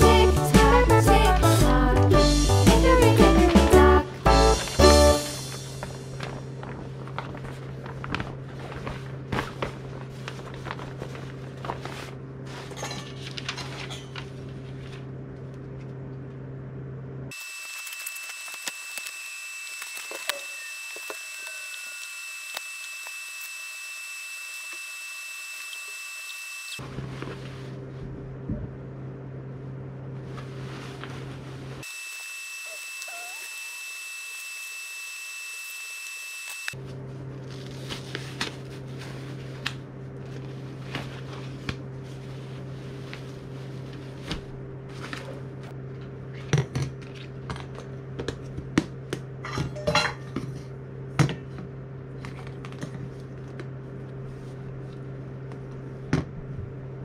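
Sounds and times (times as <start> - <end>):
thin high whine: 17.3 - 26.8, 31.8 - 36.8.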